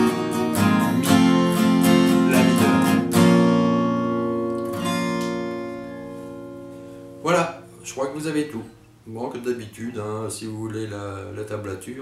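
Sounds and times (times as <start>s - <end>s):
acoustic guitar strumming: 0.0s - 9.4s.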